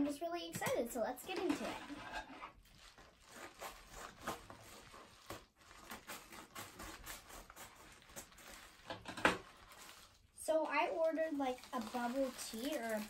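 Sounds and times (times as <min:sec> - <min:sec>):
paper envelope crinkling: 0:02.5 - 0:13.0
scissors snipping paper: 0:05.3 - 0:08.5.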